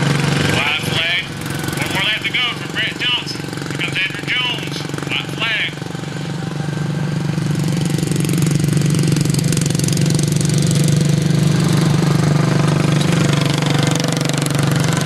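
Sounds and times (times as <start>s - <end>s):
racing lawn mower engines: 0.0s - 15.0s.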